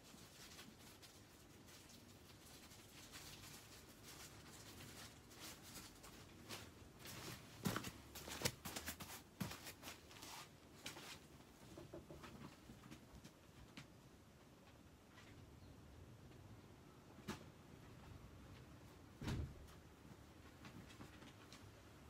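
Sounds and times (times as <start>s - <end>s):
plastic tarp crinkling underfoot: 0.0s - 11.3s.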